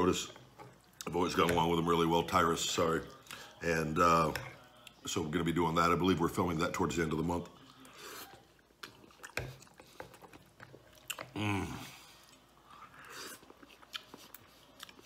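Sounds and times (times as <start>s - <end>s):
person chewing and slurping noodles: 7.6s - 15.0s
person humming: 11.4s - 11.9s.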